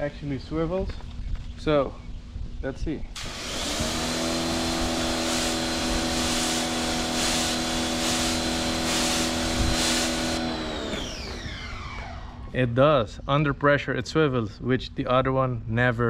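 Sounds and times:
high-pressure water jet hissing: 3.2s - 11.6s
pump motor humming: 3.2s - 12.5s.

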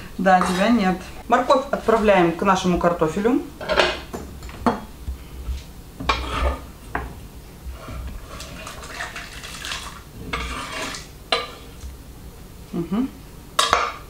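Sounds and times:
knife scraping cutting board: 0.4s - 0.8s, 6.0s - 6.7s, 10.2s - 11.1s.

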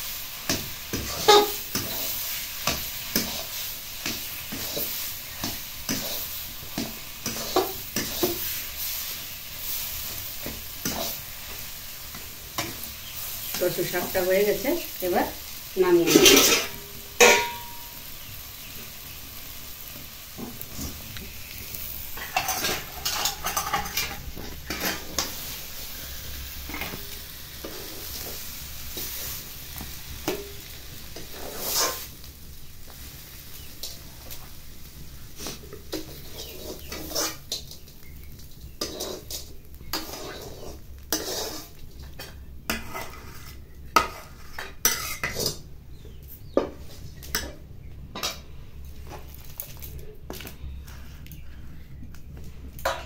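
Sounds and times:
metal ladle scraping a wok: 0.2s - 14.6s, 16.0s - 18.0s, 21.8s - 29.5s, 30.2s - 32.2s, 35.4s - 38.0s, 38.6s - 45.6s.

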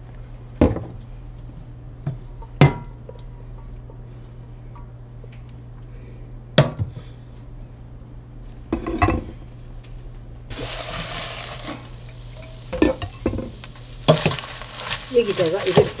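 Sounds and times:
fish skins rustling and hissing: 9.5s - 16.0s.

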